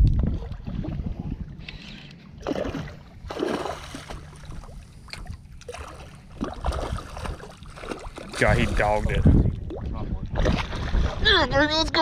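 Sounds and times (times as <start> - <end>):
wind on microphone: 0.0 - 1.7, 8.4 - 12.0
water lapping around kayak: 0.0 - 12.0.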